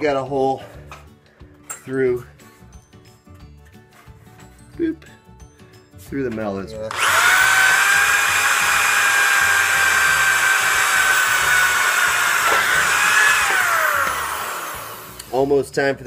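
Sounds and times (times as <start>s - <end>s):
electric drill whining: 6.9s - 15.4s.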